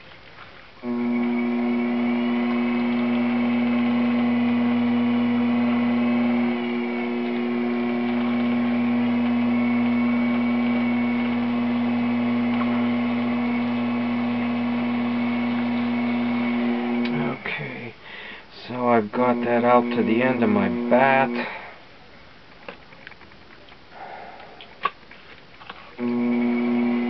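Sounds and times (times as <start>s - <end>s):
potter's wheel motor humming: 0.8s - 17.5s, 19.1s - 21.7s, 26.0s - 27.0s.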